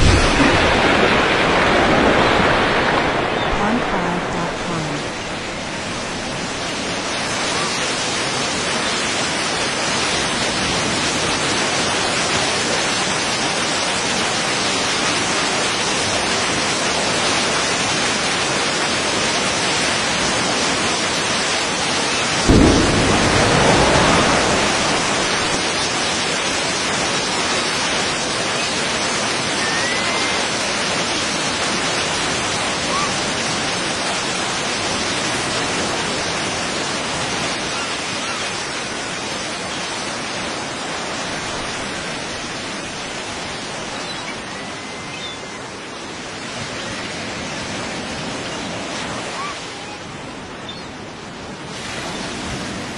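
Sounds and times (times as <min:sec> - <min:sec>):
deep rumbling boom: 0:00.0 - 0:06.5, 0:22.4 - 0:26.6
steady rushing roar: 0:00.0 - 0:13.6, 0:21.6 - 0:32.8.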